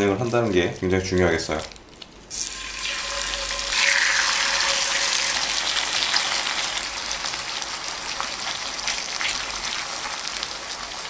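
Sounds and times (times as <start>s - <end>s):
chicken sizzling in hot oil: 2.3s - 11.0s.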